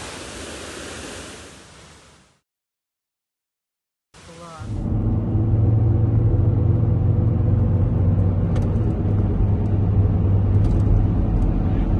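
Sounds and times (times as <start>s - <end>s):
car cabin engine and tyre drone: 4.3s - 11.9s.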